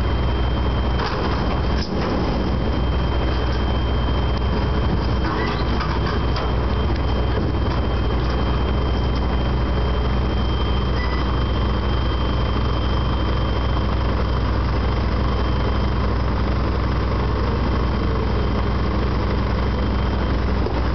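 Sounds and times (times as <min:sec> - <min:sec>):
thin high whine: 0:00.0 - 0:14.0
tracked hauler engine running: 0:00.0 - 0:20.9.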